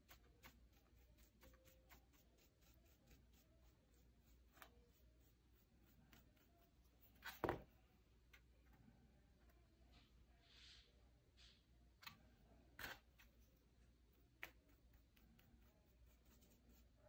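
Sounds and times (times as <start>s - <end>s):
soft brush scratching: 0.0s - 17.0s
brush knocking on board: 7.2s - 7.8s.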